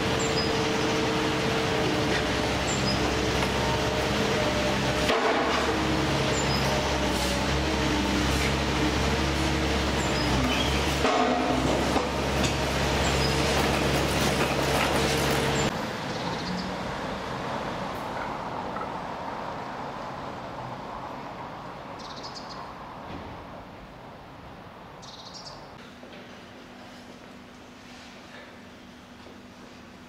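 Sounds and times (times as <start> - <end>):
vehicle engine humming: 0.0 - 21.8
street ambience: 0.0 - 30.0.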